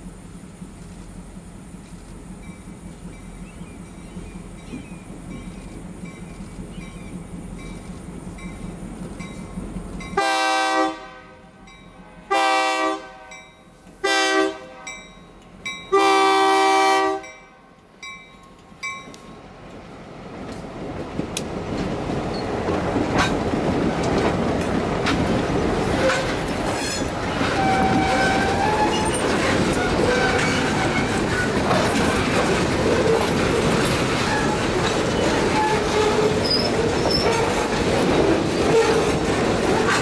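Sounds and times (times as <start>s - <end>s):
train wheels clicking over rail joints: 0.0s - 10.2s, 17.8s - 40.0s
locomotive engine rumble: 0.0s - 40.0s
locomotive horn blasts: 10.2s - 15.1s, 15.9s - 17.8s, 26.0s - 31.2s.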